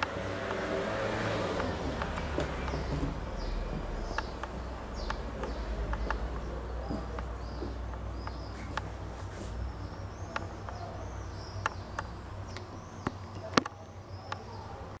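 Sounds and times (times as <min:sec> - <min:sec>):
sharp clicks: 0:00.0 - 0:09.0
low hum: 0:00.0 - 0:12.7
birds chirping: 0:00.0 - 0:15.0.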